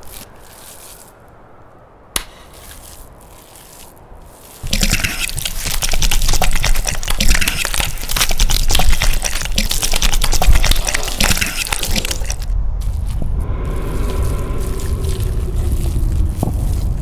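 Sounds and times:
wet matter gushing: 2.5s - 17.0s
low rumble: 11.9s - 17.0s.

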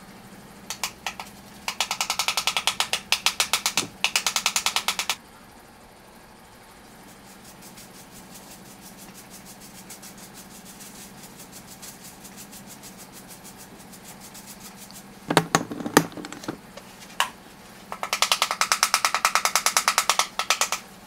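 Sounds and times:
brush bristles ticking over filter: 6.9s - 15.3s
sharp knocks: 15.3s - 16.6s.

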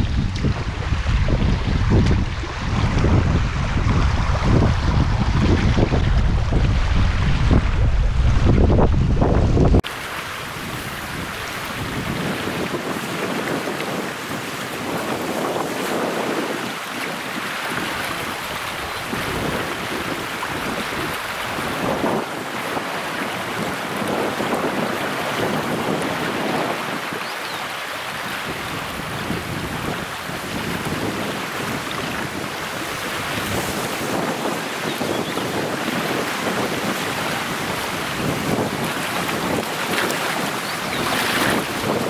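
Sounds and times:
loud low rumble: 0.0s - 9.8s
river rushing over stones: 0.0s - 42.0s.

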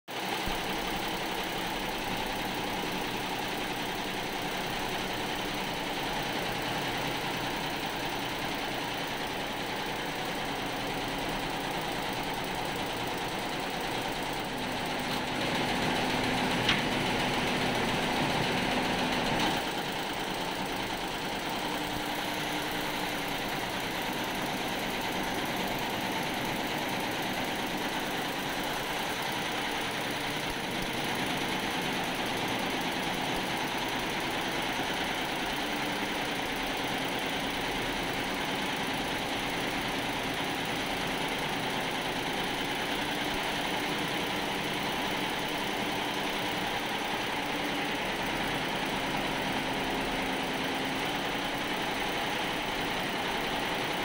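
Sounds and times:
embroidery machine stitching: 0.1s - 54.0s.

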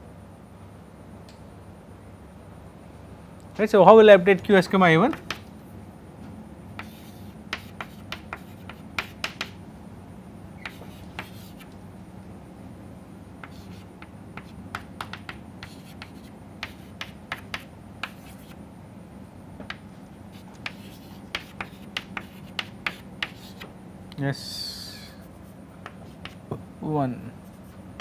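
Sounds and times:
low steady hum: 0.0s - 28.0s
chalk tapping and scraping: 5.1s - 5.5s, 6.8s - 9.6s, 10.6s - 11.8s, 13.4s - 18.6s, 19.6s - 23.7s, 25.2s - 26.6s, 27.4s - 28.0s.

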